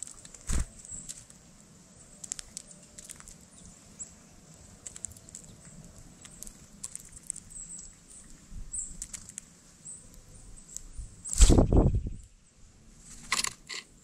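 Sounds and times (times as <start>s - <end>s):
woodpecker pecking seed: 2.2s - 3.7s, 4.5s - 9.5s.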